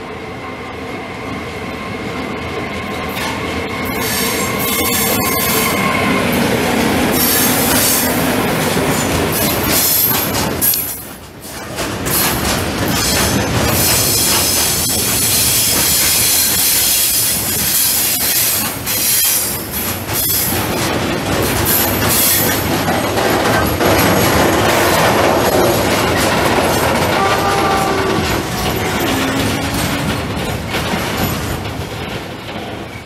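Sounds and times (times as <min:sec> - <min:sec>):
steel wheels rushing on rail: 0:00.0 - 0:33.0
high-pitched wheel squeal: 0:03.9 - 0:06.2.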